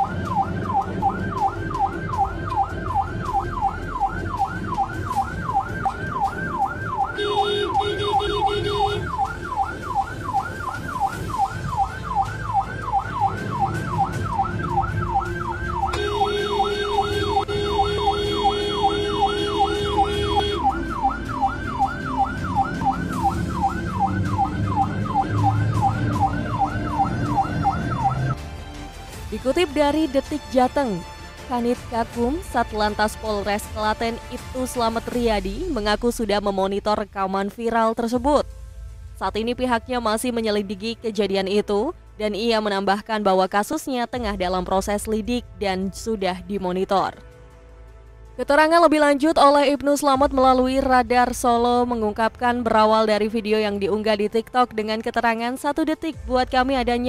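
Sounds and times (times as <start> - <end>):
ambulance siren yelp: 0.0 - 28.4
vehicle horn blast: 7.2 - 9.0, 15.9 - 20.7.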